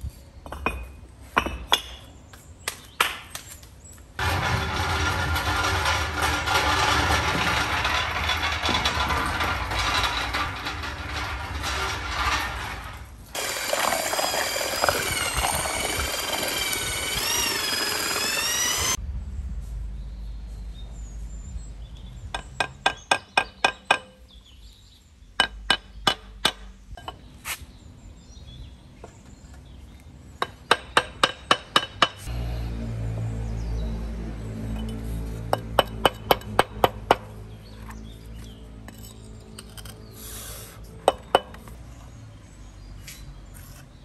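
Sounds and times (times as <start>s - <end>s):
bricks clinking: 4.2s - 19.0s
cart rolling over paving stones: 4.2s - 19.0s.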